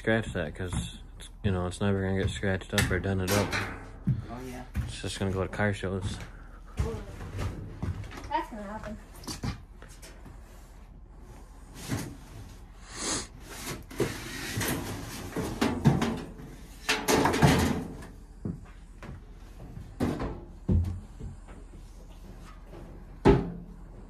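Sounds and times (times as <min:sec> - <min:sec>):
sheet panels scraping and knocking: 0:13.4 - 0:18.1.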